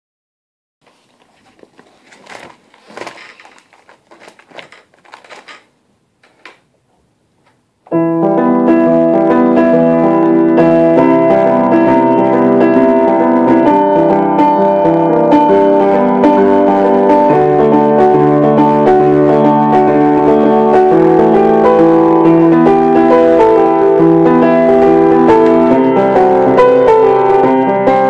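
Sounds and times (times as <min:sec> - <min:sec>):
faint clicks and knocks: 0:00.8 - 0:07.6
piano music: 0:07.9 - 0:28.0.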